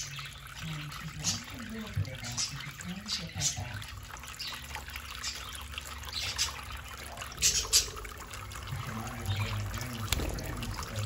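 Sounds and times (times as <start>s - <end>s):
fountain water trickling: 0.0s - 11.0s.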